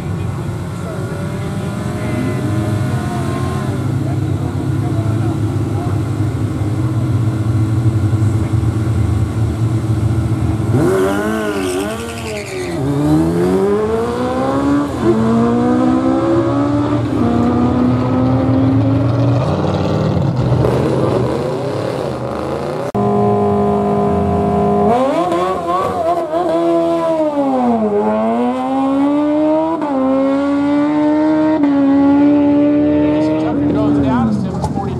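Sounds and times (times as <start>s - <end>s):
motorcycle engines revving: 0.0s - 34.9s
motorcycle accelerating through gears: 12.7s - 34.9s.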